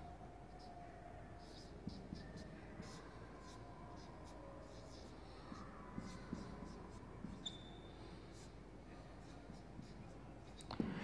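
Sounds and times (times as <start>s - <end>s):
marker scratching on whiteboard: 1.4s - 10.6s
marker tapping: 6.0s - 7.6s
high-pitched marker squeak: 7.2s - 7.9s.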